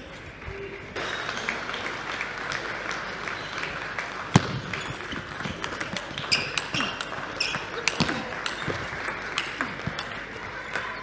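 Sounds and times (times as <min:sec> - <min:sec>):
crowd noise: 0:00.0 - 0:11.0
table tennis ball clicks: 0:04.4 - 0:11.0.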